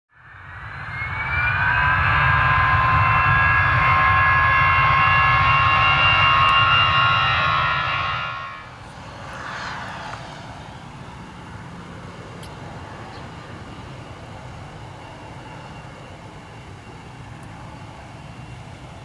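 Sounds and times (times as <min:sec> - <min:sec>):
jet engine whine: 0:00.1 - 0:19.0
distant jet noise: 0:00.2 - 0:19.0
deep jet rumble: 0:00.4 - 0:13.8.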